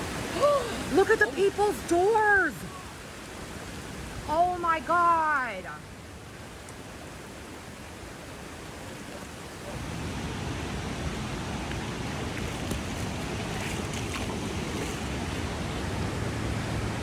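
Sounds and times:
flood water rushing: 0.0s - 17.0s.

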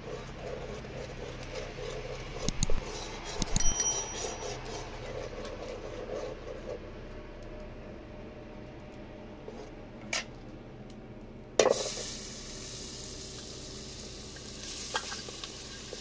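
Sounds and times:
utensils knocking on cookware: 3.3s - 4.6s
bright metallic ring: 3.4s - 4.6s.

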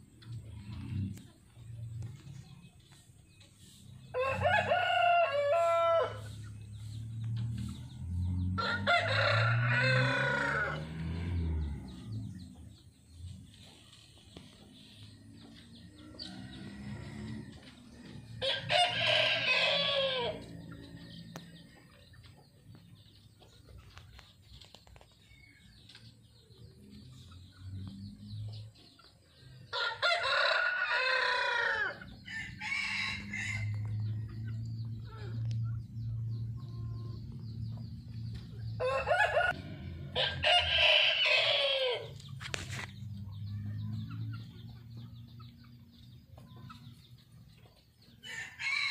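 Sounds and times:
rooster crowing: 4.1s - 6.3s, 8.6s - 11.5s, 18.4s - 20.6s, 29.7s - 34.0s, 38.8s - 42.2s, 48.2s - 48.9s.

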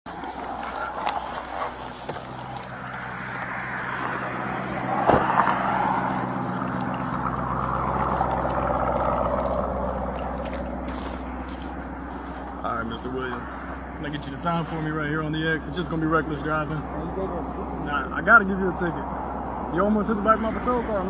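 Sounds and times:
road rushing noise: 0.0s - 21.0s
low engine hum: 0.1s - 21.0s
sharp thump: 5.0s - 5.5s.

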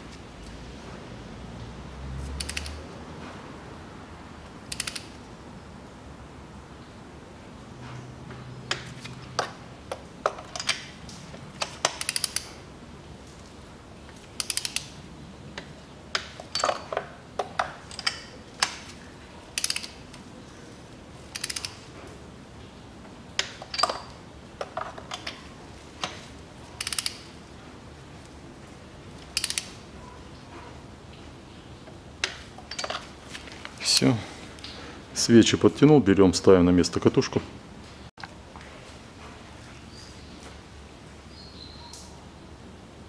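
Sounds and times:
ratcheting torque wrench clicking: 2.4s - 2.8s, 4.7s - 5.2s, 11.6s - 12.6s, 14.4s - 15.0s, 19.6s - 20.0s, 21.3s - 21.8s, 26.8s - 27.3s, 29.3s - 29.8s.

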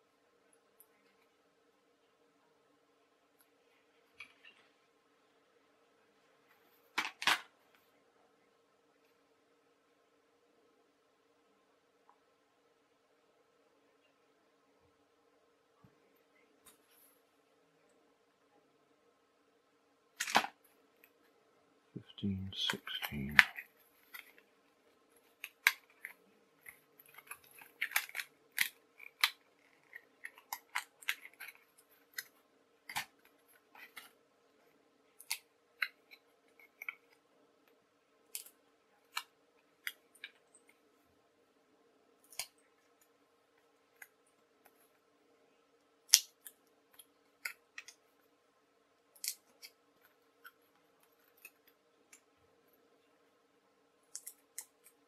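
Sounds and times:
puzzle pieces clicking and snapping: 20.2s - 20.6s, 25.2s - 34.2s
card rustling: 20.2s - 21.3s.

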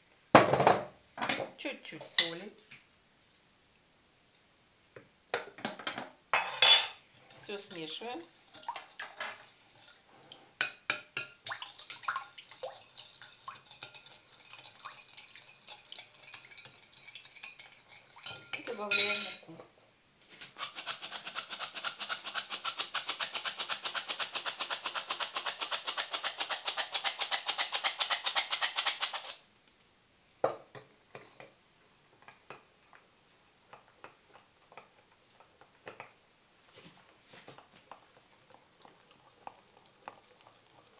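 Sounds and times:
spoon clinking in glass bowl: 15.7s - 19.4s.

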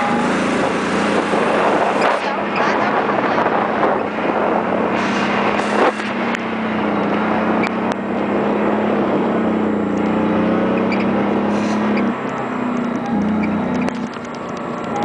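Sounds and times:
golf cart motor hum: 0.0s - 2.7s, 5.6s - 15.0s
wind and wheels rushing: 0.0s - 15.0s
small clicks and rattles: 13.7s - 15.0s.

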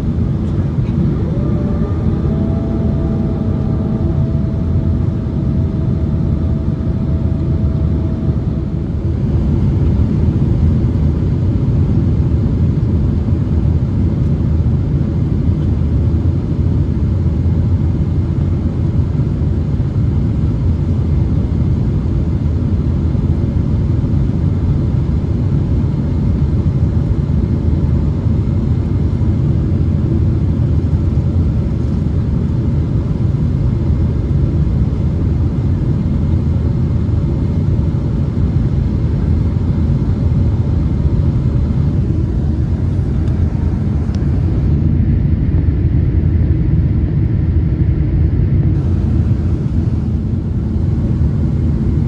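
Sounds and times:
thin steady whine: 0.0s - 15.3s, 28.2s - 52.0s
airplane cabin rumble: 0.0s - 52.0s.

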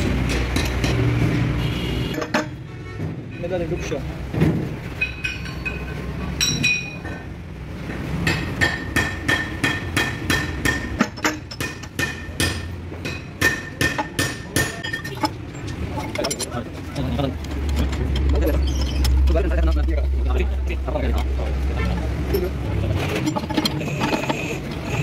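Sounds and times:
sharp metal strikes: 8.2s - 15.2s.

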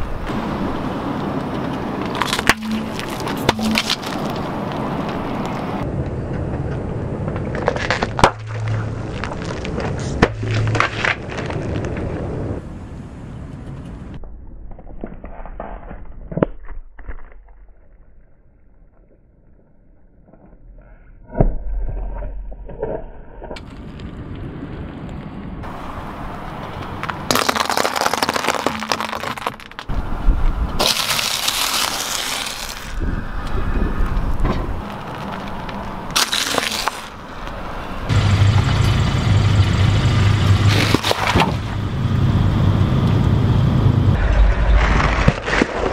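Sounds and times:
low hum: 0.0s - 16.0s, 37.0s - 45.9s
low tyre rumble: 0.0s - 16.5s, 17.7s - 45.9s
tyre crushing ice cream cones: 2.0s - 5.6s, 27.0s - 29.9s, 30.8s - 33.0s, 34.6s - 37.6s, 40.7s - 41.6s
tyre crunching over plastic pouches: 30.8s - 33.0s, 34.8s - 37.2s.

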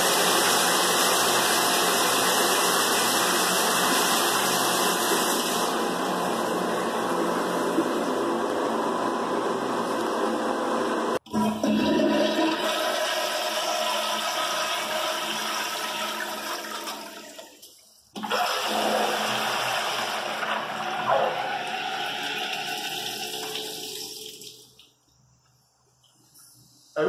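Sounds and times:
toilet flushing: 0.0s - 25.0s.

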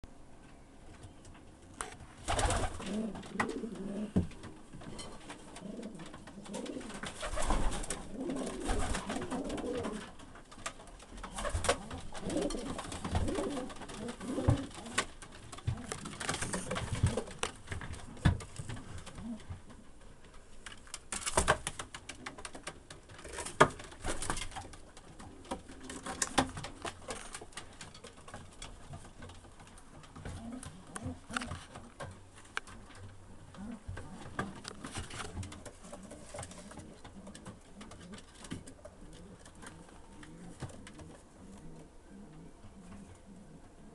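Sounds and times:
pigeons cooing: 2.3s - 4.6s, 5.4s - 10.2s, 11.3s - 17.5s, 33.3s - 43.9s.

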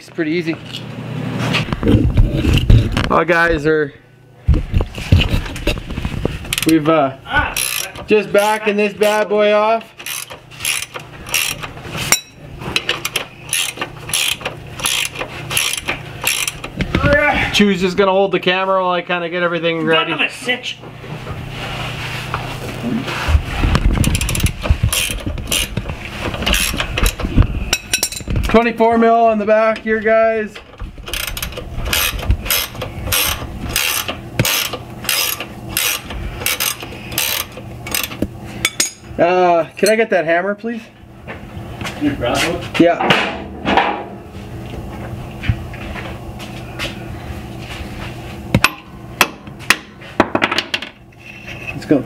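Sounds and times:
steady low hum: 0.0s - 52.0s
ratchet wrench clicking: 7.6s - 8.0s, 10.0s - 11.7s, 12.8s - 16.7s, 24.0s - 25.8s, 26.4s - 28.2s, 31.1s - 38.9s.

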